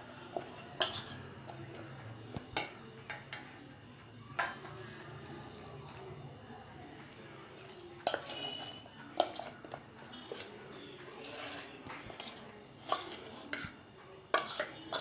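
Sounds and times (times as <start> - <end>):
spoon stirring thick batter: 0.0 - 3.6, 7.0 - 15.0
spoon clinking against steel pot: 0.4 - 1.2, 2.5 - 3.5, 8.0 - 10.5, 11.3 - 15.0.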